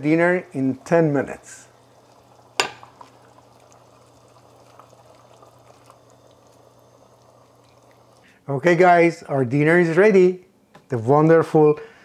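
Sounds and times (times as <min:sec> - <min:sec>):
stew simmering with bubbling: 0:00.0 - 0:08.4.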